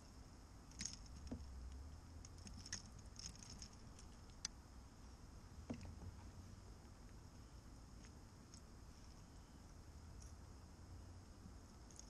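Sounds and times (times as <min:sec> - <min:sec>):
faint clicks of fishing hooks and net: 0:00.7 - 0:04.6, 0:07.9 - 0:09.4, 0:11.4 - 0:12.0.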